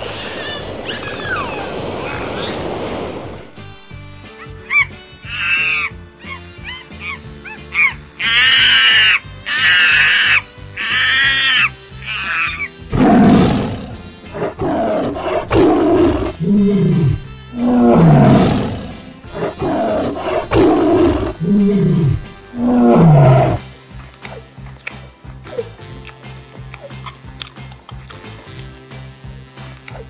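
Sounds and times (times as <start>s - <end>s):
background music: 0.0s - 30.0s
high-pitched animal calls: 4.7s - 12.7s
tiger growling: 12.9s - 23.6s.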